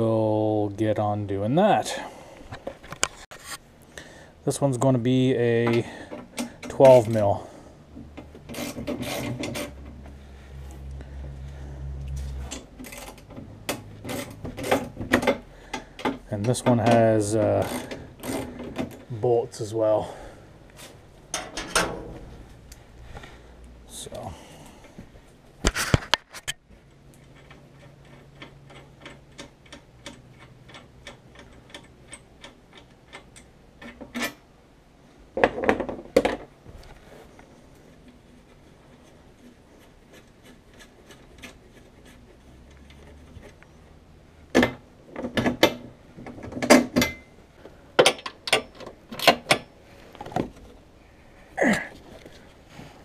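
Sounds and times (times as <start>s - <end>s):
ratchet wrench clicking: 8.5s - 9.8s, 17.6s - 18.5s
metal tools clanking: 21.3s - 22.2s.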